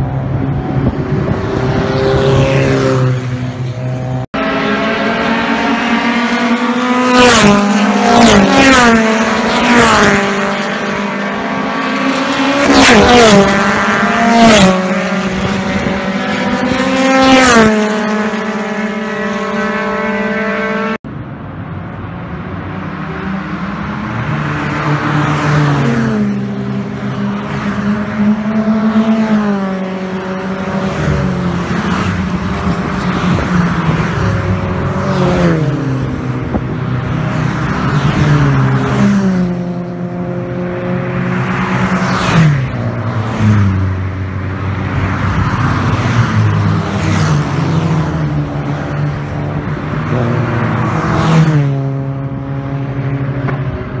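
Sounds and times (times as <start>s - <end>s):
tyre and wind noise: 0.0s - 2.9s, 31.8s - 39.2s
cars driving past at speed: 0.0s - 54.0s.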